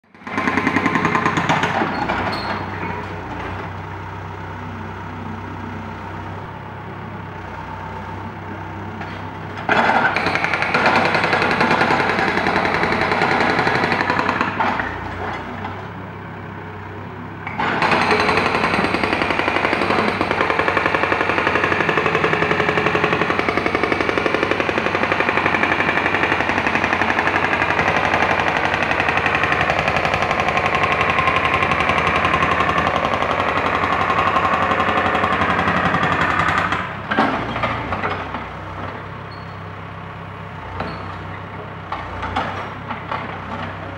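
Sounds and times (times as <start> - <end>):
jackhammer running: 0.1 - 6.6, 9.0 - 15.9, 17.4 - 39.0.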